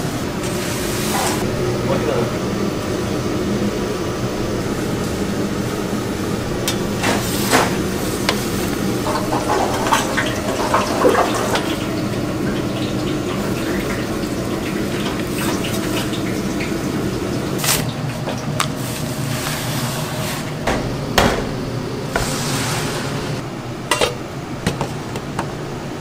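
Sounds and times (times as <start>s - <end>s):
kitchen utensils clinking: 6.7s - 12.0s, 22.2s - 25.0s
water running into sink: 6.7s - 19.8s.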